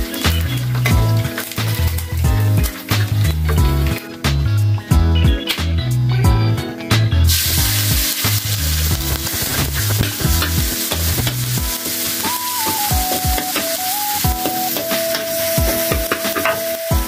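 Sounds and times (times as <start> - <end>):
food sizzling in hot oil: 0.0 - 3.9, 7.3 - 17.0.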